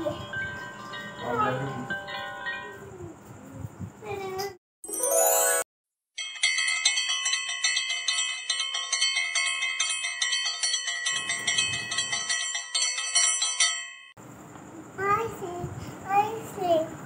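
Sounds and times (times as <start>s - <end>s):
bicycle bell ringing rapidly: 6.2s - 14.2s.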